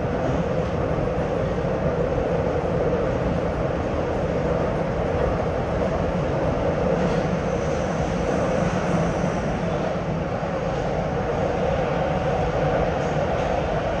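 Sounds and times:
train wheels rumbling in tunnel: 0.0 - 14.0.

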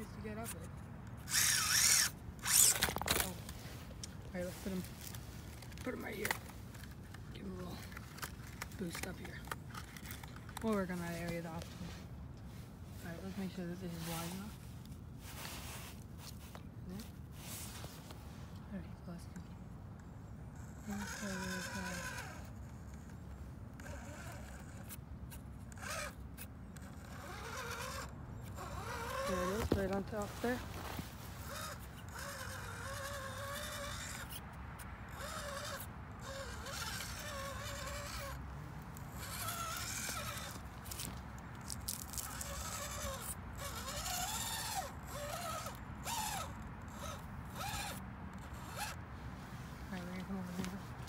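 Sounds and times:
toy truck motor whining: 0.0 - 11.6, 20.5 - 49.1.

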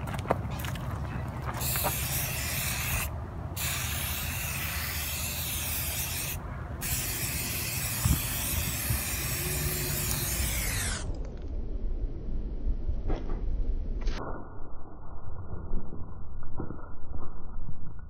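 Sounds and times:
aerosol spray can hissing: 1.6 - 11.1.

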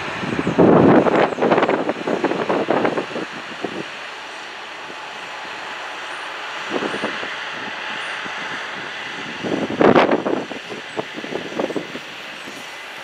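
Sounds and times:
harvest machinery running: 0.0 - 13.0.

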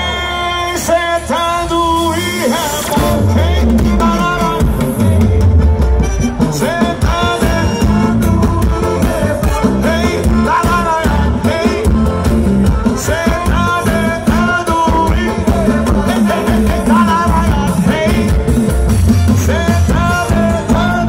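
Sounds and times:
live band playing: 0.0 - 21.0
person singing lead: 19.3 - 21.0.

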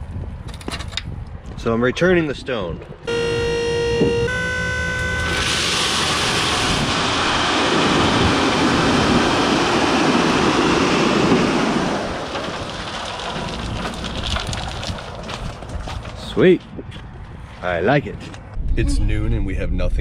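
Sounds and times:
stones rattling out of trailer: 5.4 - 16.6.

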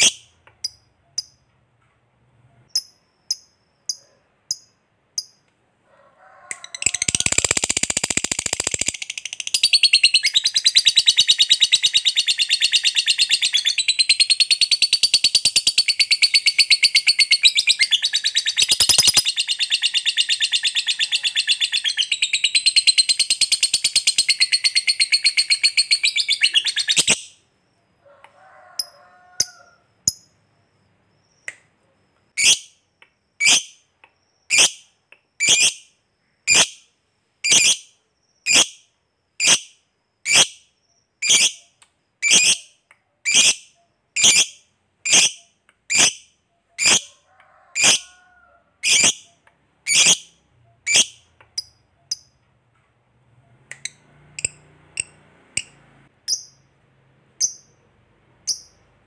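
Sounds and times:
lovebird sharp high calls: 6.5 - 27.3, 41.2 - 46.2, 46.8 - 47.1, 48.8 - 52.3
lovebird chattering trill: 6.7 - 27.3.

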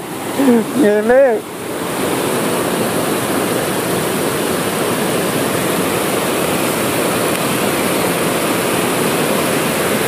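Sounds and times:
river water rushing over boulders: 0.0 - 10.0.

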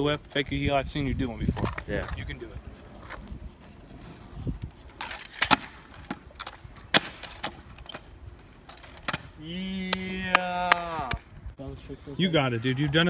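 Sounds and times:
scooter wheels rumbling on asphalt: 0.0 - 10.6
scooter deck and bars rattling: 1.3 - 9.4.

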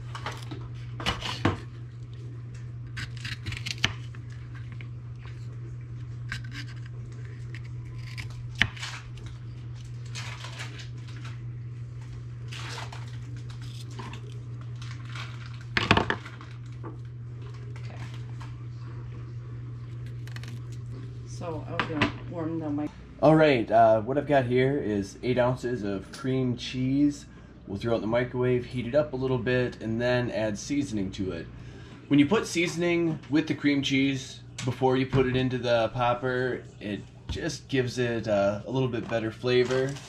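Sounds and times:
peppers crunching: 0.0 - 11.4, 12.4 - 16.8, 19.8 - 21.2, 39.3 - 40.0
low hum: 0.0 - 32.2.

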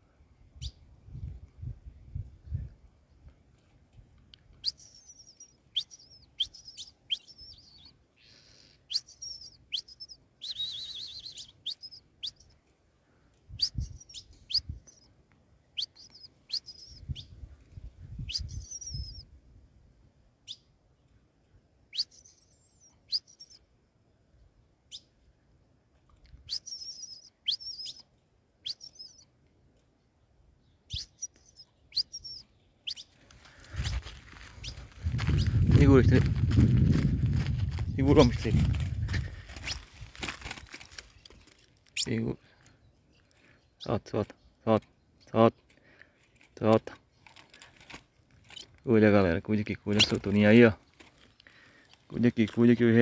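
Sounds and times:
bird warbled song: 4.5 - 12.6, 13.5 - 19.3, 21.9 - 23.7, 26.4 - 29.3, 30.6 - 36.3, 48.4 - 52.8.

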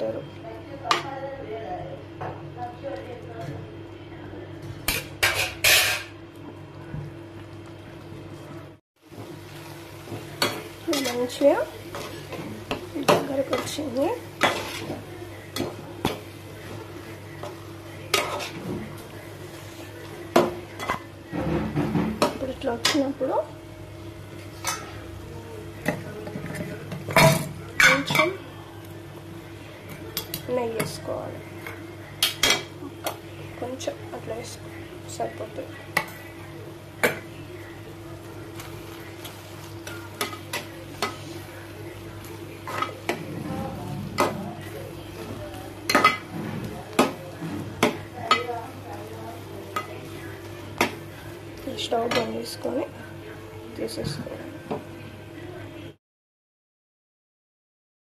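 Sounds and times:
faint sizzle: 0.0 - 56.0
metal spoon scraping a pan: 5.2 - 6.2
spatula stirring food: 9.0 - 53.0.

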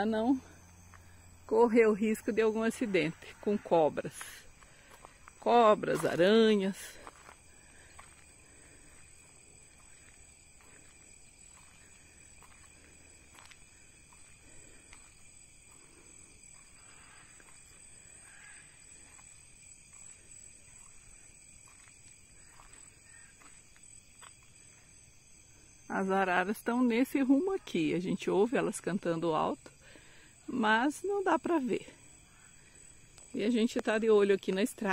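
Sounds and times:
insect chorus droning: 0.0 - 34.9
soft scattered ticks: 2.7 - 25.6.

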